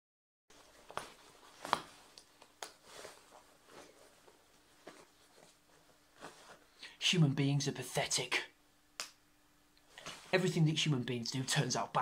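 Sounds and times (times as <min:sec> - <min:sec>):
waterproof jacket rustling: 0:00.5 - 0:06.7
faint steady hum: 0:00.5 - 0:12.0.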